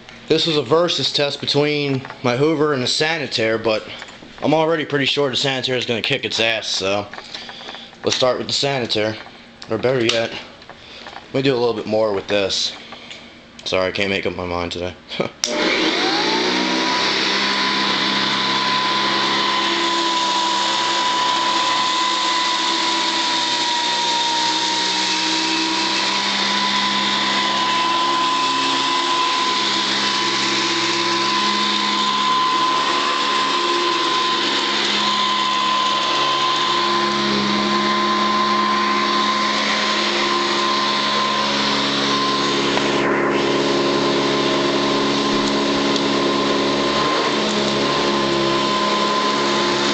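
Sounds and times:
vacuum cleaner motor whine: 0:15.4 - 0:49.9.

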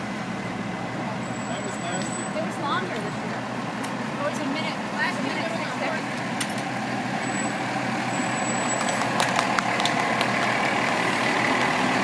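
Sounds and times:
fire engine diesel engine: 0:00.0 - 0:12.0.

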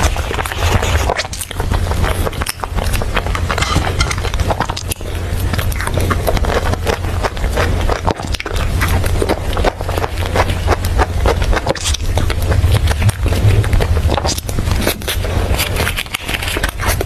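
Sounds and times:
steady low hum: 0:00.0 - 0:17.0
wet mouth clicks and chewing: 0:00.0 - 0:17.0.

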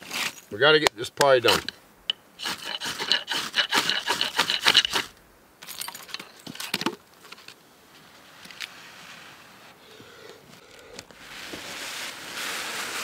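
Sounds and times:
charcoal scuffing and crumbling: 0:00.0 - 0:01.8, 0:11.0 - 0:13.0
ferro rod scraped with striker: 0:01.4 - 0:01.8, 0:02.4 - 0:05.1.

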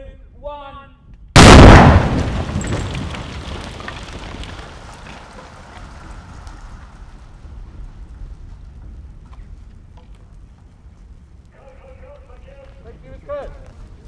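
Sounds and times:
loud explosion blast: 0:01.4 - 0:04.9
flames crackling: 0:01.4 - 0:14.0.

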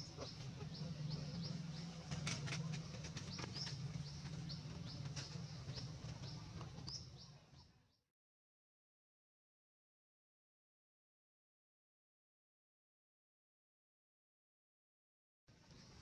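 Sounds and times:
low steady rumble: 0:00.0 - 0:07.7
small bird chirping: 0:00.0 - 0:07.8.

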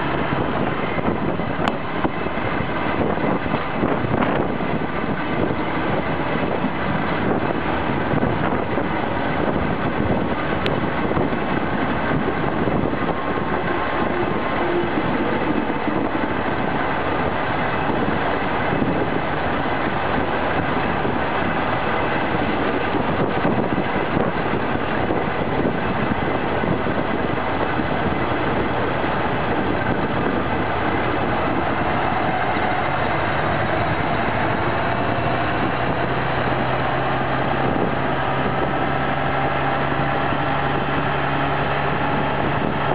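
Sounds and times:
railcar wheels rolling on rails: 0:00.0 - 0:42.9.

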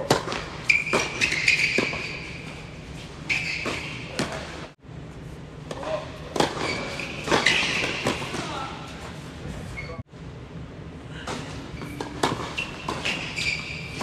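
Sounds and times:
tennis balls struck and bouncing: 0:00.0 - 0:02.1, 0:05.7 - 0:08.6, 0:11.3 - 0:14.0.

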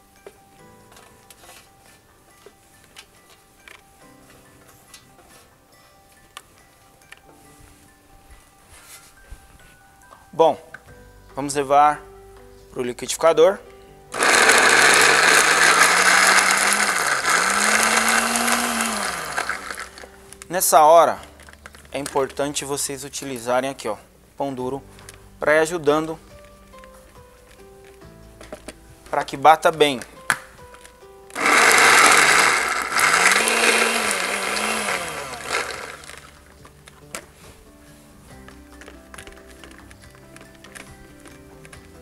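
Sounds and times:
blender motor running: 0:14.2 - 0:20.1, 0:31.4 - 0:36.3.

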